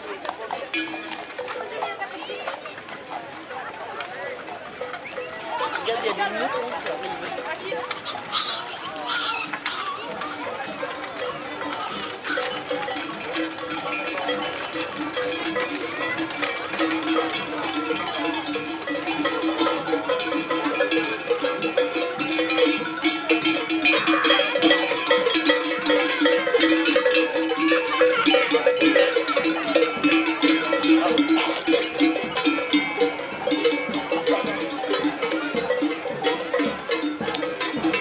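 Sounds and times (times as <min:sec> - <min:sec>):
livestock bells clanking: 0:00.0 - 0:38.0.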